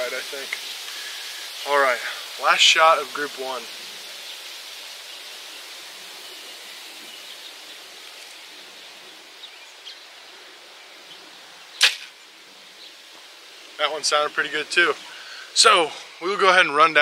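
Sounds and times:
outdoor background noise: 0.0 - 17.0
bow string crack: 11.8 - 12.2.

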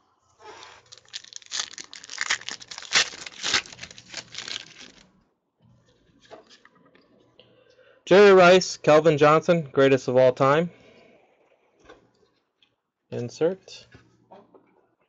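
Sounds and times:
foil wrapper tearing and crinkling: 0.6 - 5.0.

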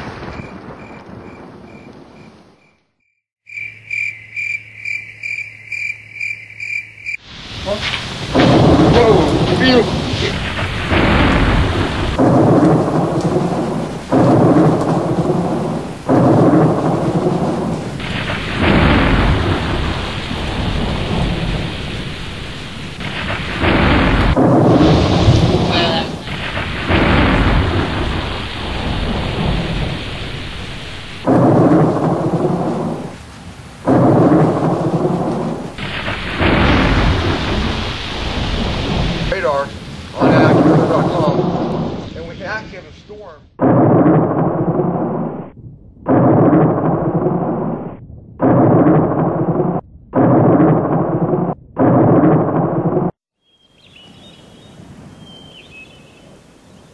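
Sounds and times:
steady rain: 0.0 - 2.6, 7.1 - 43.4, 53.8 - 56.9
thunder rumbling: 0.0 - 2.7, 6.6 - 53.2
wind gusting on microphone: 7.2 - 42.9.

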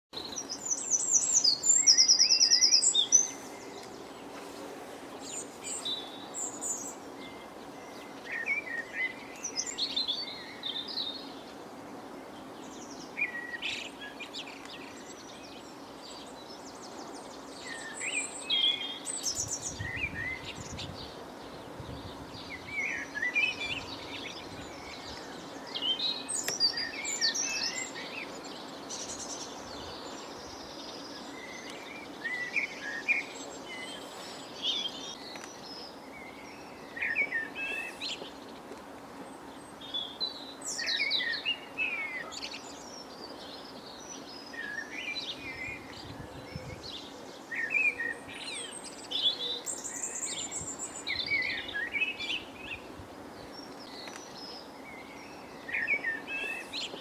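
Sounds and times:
low background noise: 0.2 - 57.0
small birds chirping: 0.2 - 57.0.

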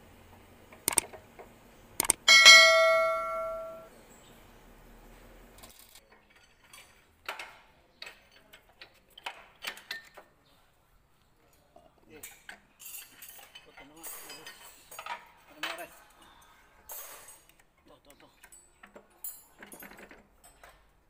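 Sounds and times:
click: 0.9 - 1.1, 2.0 - 2.2
metal tool clicks and taps: 0.9 - 1.1, 2.0 - 3.8
bell-like notification ding: 2.3 - 3.9.

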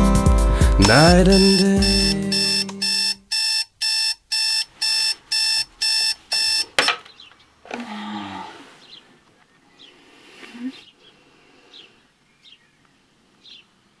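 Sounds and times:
alarm button click: 0.8 - 4.0
alarm clock beeping: 0.8 - 7.0.

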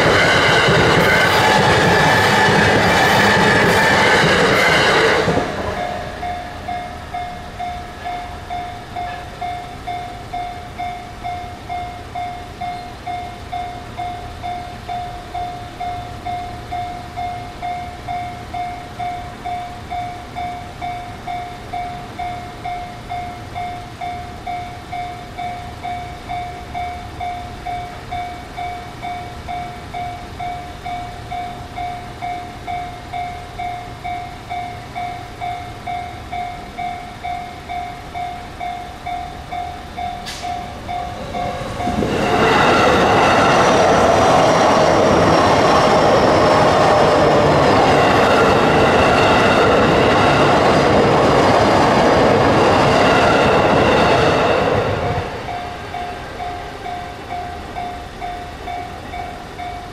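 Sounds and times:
train passing: 0.0 - 59.9
level crossing bell ringing: 5.6 - 52.9.

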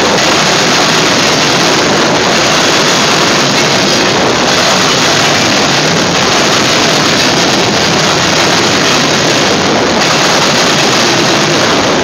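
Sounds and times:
freight train wheels on rails: 0.0 - 12.0.

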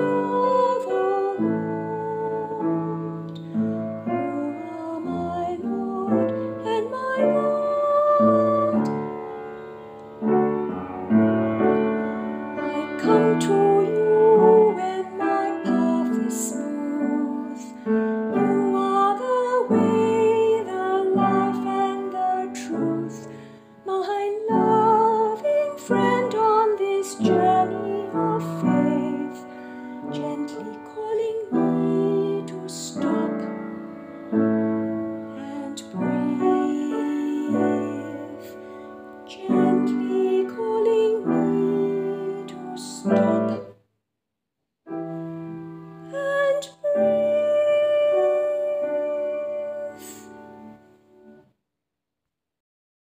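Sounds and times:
slow gentle piano music: 0.0 - 43.8, 44.9 - 51.4.

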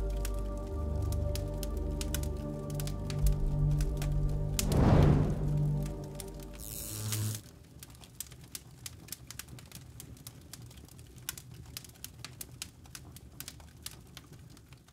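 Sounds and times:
background music: 0.0 - 7.4
fire crackling: 0.0 - 14.9
low rumble: 2.8 - 6.7.

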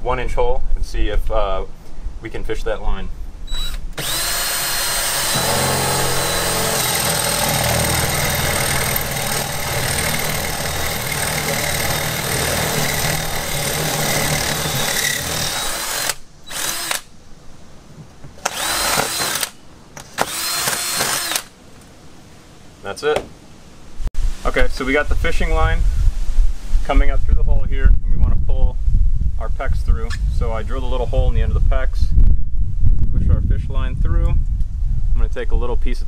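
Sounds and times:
cordless drill boring: 3.5 - 17.0, 18.4 - 21.5.

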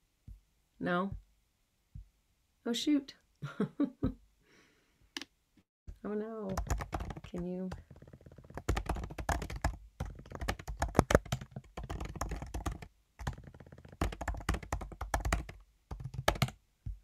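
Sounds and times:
computer keyboard typing: 6.5 - 16.6.

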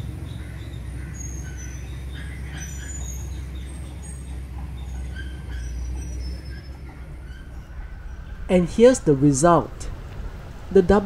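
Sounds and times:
low rumble: 6.6 - 11.0.

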